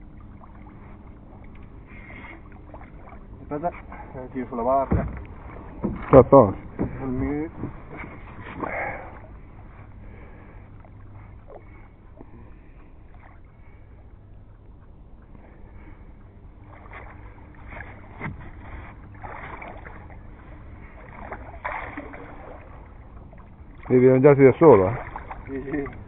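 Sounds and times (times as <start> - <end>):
steady low rumble: 0.0 - 26.0
fish splashing in water: 16.6 - 24.0, 24.7 - 26.0.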